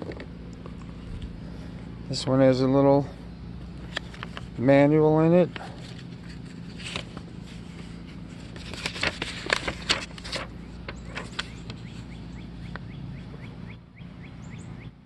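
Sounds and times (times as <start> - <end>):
paper leaflet rustling: 3.7 - 12.1.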